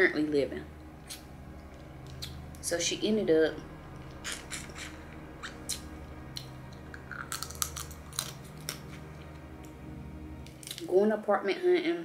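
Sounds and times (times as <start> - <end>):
crab shell cracking and crunching: 6.8 - 9.7, 10.4 - 10.9.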